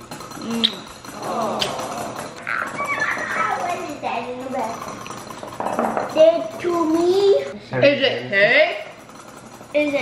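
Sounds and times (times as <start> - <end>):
boy's playful voice: 2.8 - 4.8, 6.0 - 8.0.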